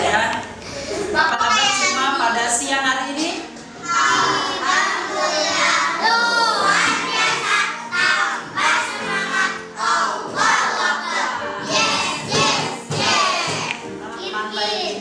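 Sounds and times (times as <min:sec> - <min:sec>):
music: 0:00.0 - 0:15.0
children singing together: 0:03.7 - 0:15.0.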